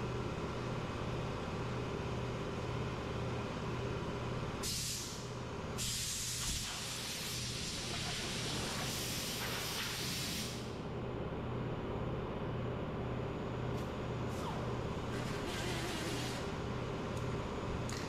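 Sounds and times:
pneumatic air tool hissing: 4.6s - 5.2s
short bursts of air hiss: 4.6s - 10.7s.

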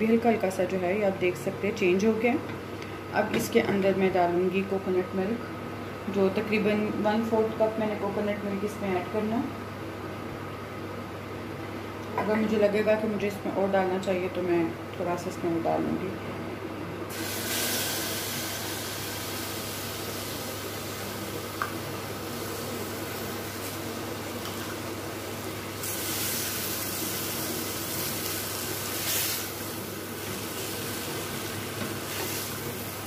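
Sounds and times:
coconut milk sizzling in a pan: 17.1s - 33.0s.

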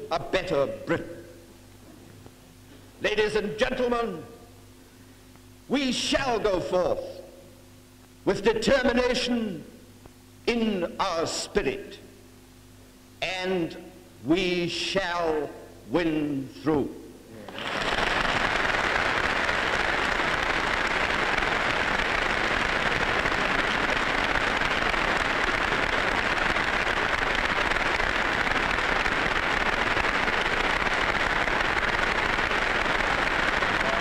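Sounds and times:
large audience applauding: 17.6s - 34.0s.

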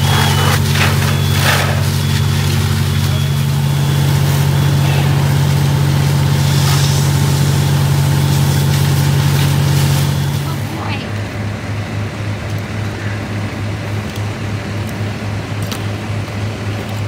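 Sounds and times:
diesel engine at raised revs: 0.0s - 17.0s.

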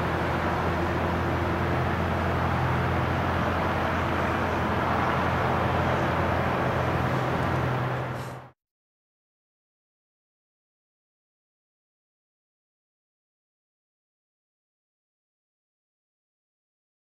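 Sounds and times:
jet engines droning: 0.0s - 8.6s.

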